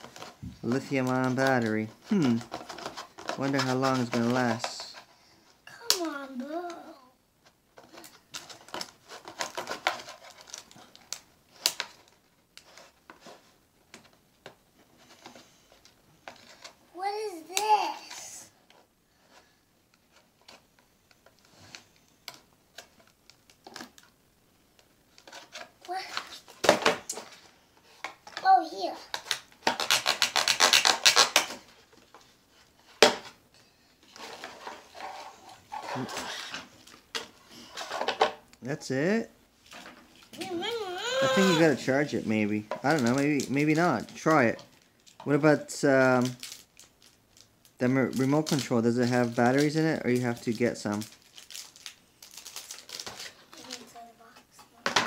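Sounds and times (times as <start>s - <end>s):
knife sawing packaging: 29.7s - 31.4s.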